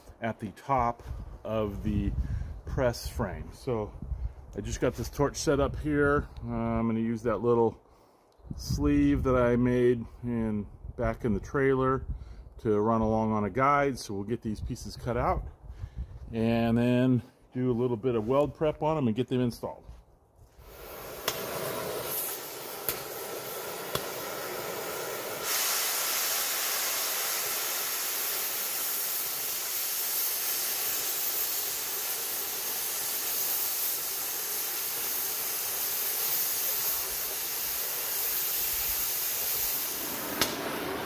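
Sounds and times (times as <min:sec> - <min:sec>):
cutting torch hissing: 0:20.5 - 0:41.0
sharp torch pops: 0:20.6 - 0:41.0.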